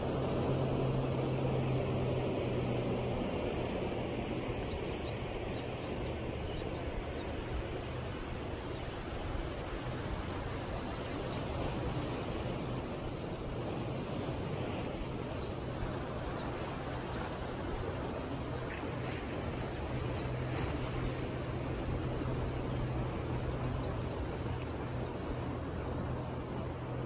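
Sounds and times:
distant engine hum: 0.0s - 27.0s
sea and wind noise: 0.0s - 27.0s.

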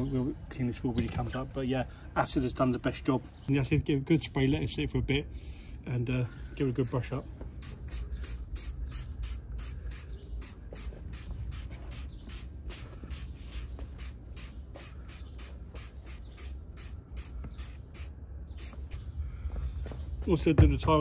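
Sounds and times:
trigger spray bottle squirting: 7.6s - 19.0s.

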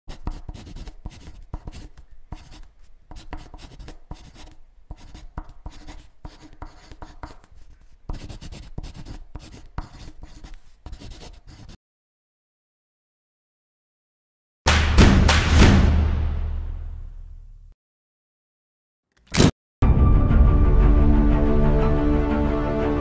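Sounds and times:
pen scratching on paper: 0.1s - 11.8s.

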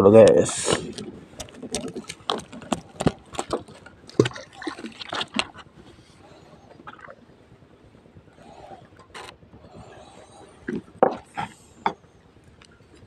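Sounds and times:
handling clicks and rustling: 0.6s - 5.7s.

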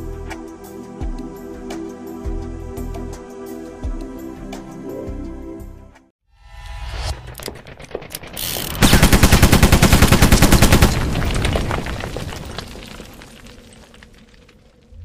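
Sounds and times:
machine-gun fire: 7.6s - 11.5s.

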